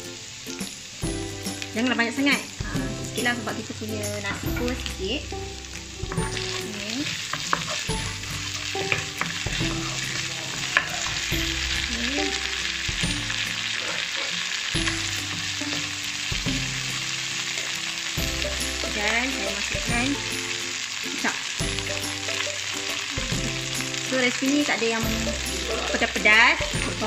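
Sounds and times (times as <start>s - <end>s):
food sizzling in hot oil: 0.0s - 27.0s
wooden spatula scraping wok: 1.5s - 20.5s, 21.6s - 27.0s
spatula tapping pan: 6.0s - 11.8s.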